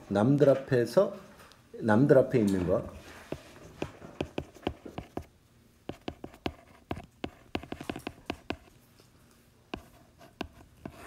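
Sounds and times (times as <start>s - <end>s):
stylus tapping on glass screen: 5.9s - 8.6s.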